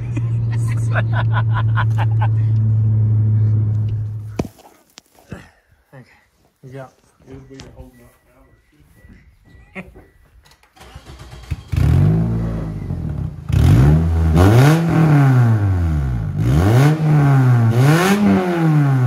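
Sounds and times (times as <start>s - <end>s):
car engine revving: 1.4s - 4.4s, 10.8s - 19.0s.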